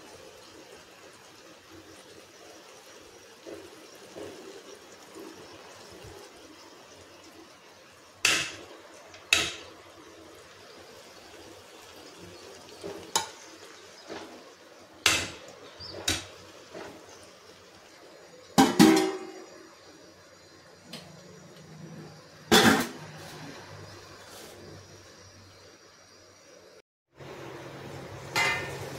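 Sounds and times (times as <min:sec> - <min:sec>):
metal cookware clanking: 0:08.2 - 0:09.8, 0:12.8 - 0:14.4, 0:18.6 - 0:19.6, 0:22.5 - 0:23.3, 0:28.3 - 0:28.9.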